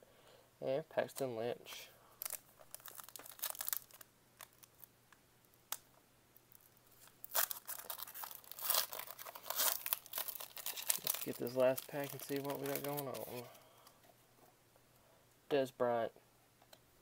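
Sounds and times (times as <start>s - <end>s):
packaging crinkling and tearing: 2.2s - 4.9s, 6.5s - 13.5s.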